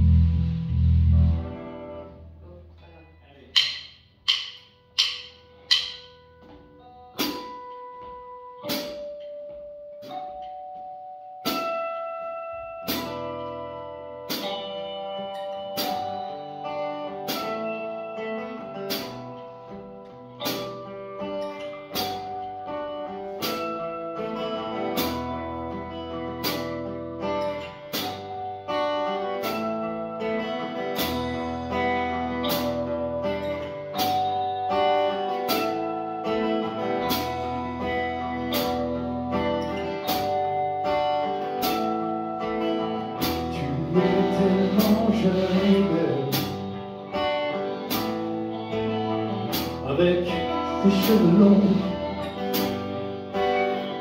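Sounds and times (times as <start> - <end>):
bass notes: 0.0 - 2.8
guitars playing slow instrumental: 0.0 - 2.9, 3.5 - 54.0
metronome clicks: 3.5 - 6.5.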